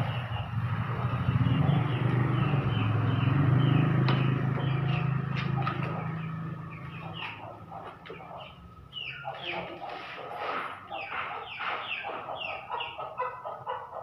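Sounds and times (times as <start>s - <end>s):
low engine drone: 0.0s - 9.4s.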